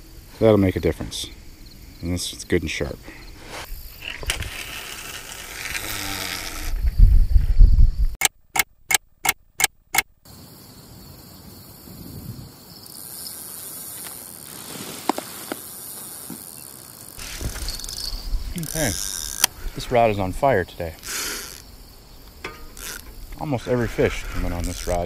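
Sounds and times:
faint outdoor background: 0.0s - 25.0s
microphone handling noise: 17.2s - 20.0s.

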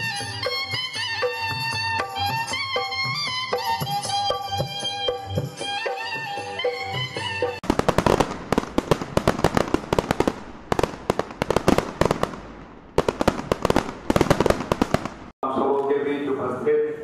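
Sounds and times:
folk fiddle music: 0.0s - 7.6s.

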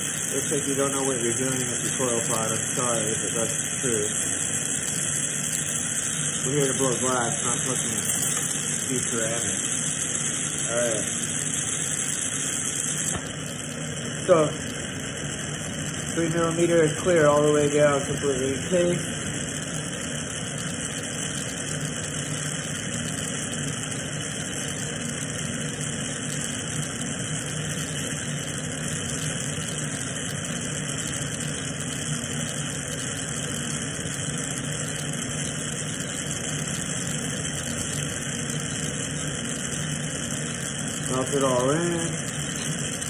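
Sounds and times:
torch flame hissing: 0.0s - 43.0s.

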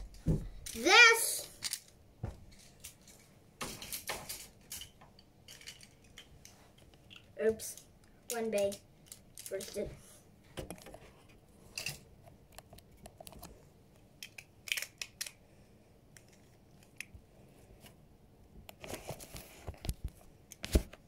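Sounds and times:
small objects clicking and rustling: 0.0s - 9.9s, 14.2s - 15.4s.

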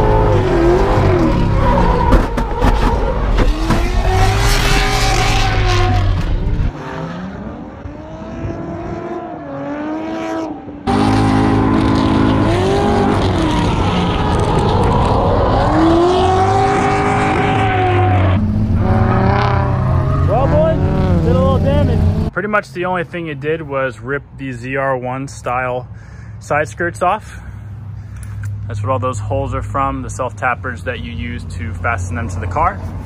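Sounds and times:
car engine revving hard: 0.0s - 22.3s.

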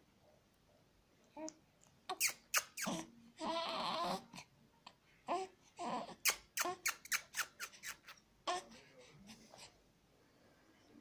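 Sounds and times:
baby cooing and babbling: 1.3s - 8.8s.

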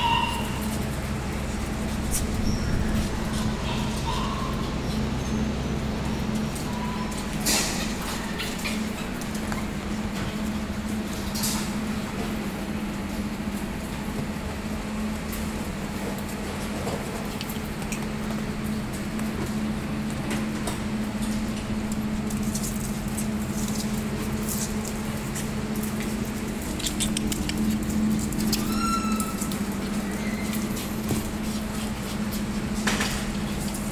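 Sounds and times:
dog whining: 0.0s - 0.8s, 2.2s - 9.8s, 27.0s - 30.9s
steady low hum: 0.0s - 33.9s
dog claws clicking on wooden floor: 22.2s - 33.9s.

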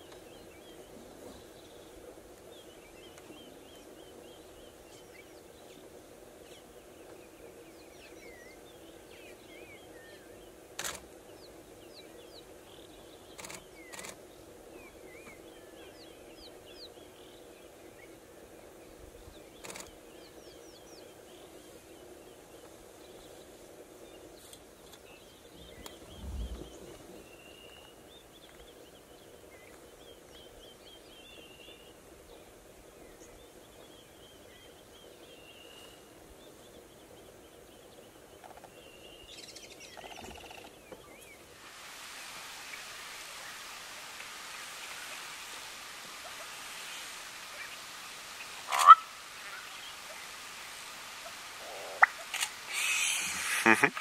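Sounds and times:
sharp clicks: 10.8s - 11.0s.

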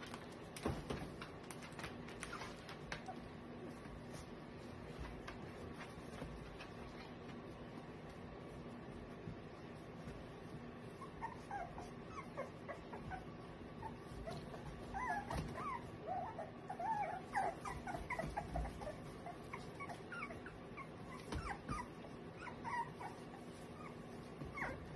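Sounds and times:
puppies whimpering: 10.8s - 24.9s.

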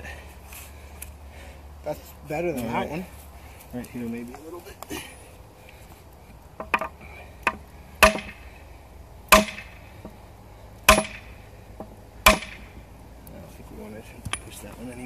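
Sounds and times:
hammer striking hammer on steel: 7.5s - 8.4s, 9.3s - 9.7s, 10.9s - 11.3s, 12.3s - 12.6s.

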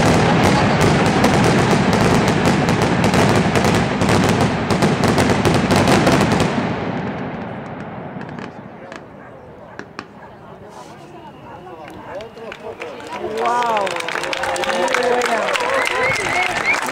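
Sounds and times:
fireworks fountain rushing hiss: 0.0s - 7.0s
fireworks crackles and pops: 0.0s - 9.1s, 9.8s - 11.0s.

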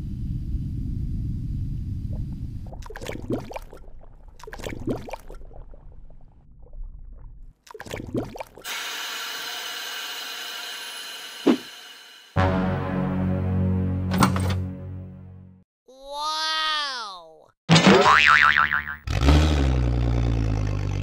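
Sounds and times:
underwater gurgling and sloshing: 0.8s - 8.7s
thump: 11.5s - 11.7s.

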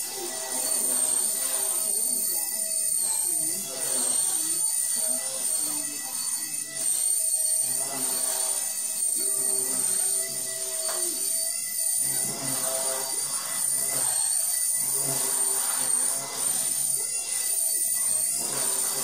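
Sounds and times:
television voices and music: 0.0s - 14.3s
rc helicopter motor whine: 0.0s - 19.0s.

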